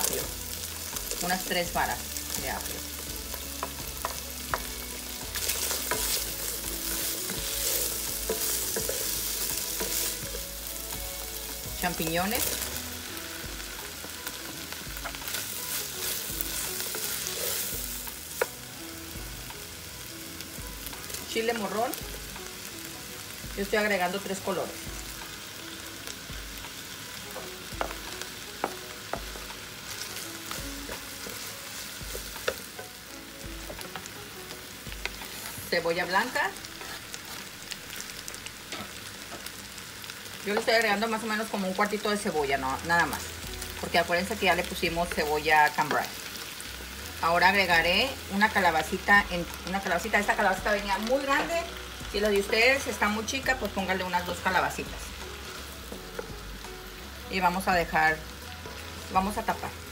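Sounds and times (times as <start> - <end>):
food sizzling in a frying pan: 0.0 - 59.9
wooden spoon knocking on pan: 27.3 - 29.6.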